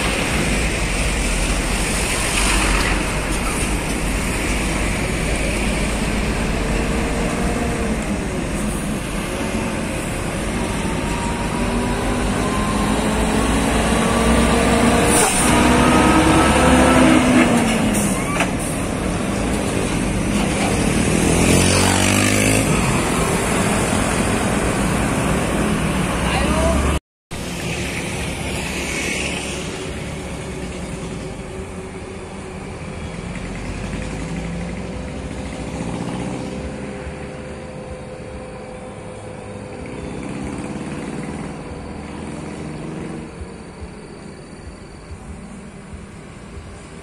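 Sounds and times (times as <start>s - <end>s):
diesel truck engine labouring: 0.0s - 27.6s.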